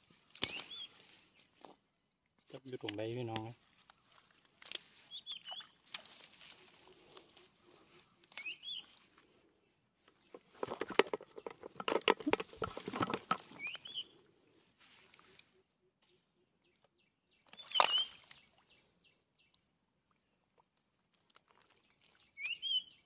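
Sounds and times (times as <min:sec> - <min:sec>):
leaves and grass rustling: 0:00.0 - 0:01.8, 0:03.6 - 0:09.5
bird chirping: 0:07.8 - 0:09.0, 0:13.5 - 0:14.2, 0:16.6 - 0:19.6, 0:22.3 - 0:23.0.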